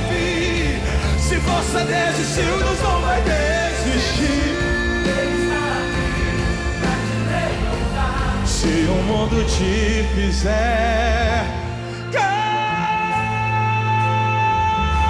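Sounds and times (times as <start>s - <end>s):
keyboard chords: 0.0s - 15.0s
steady bass: 0.0s - 15.0s.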